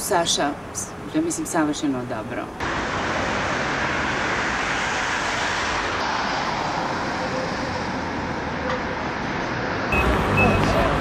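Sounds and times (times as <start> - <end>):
road traffic noise: 0.0 - 11.0.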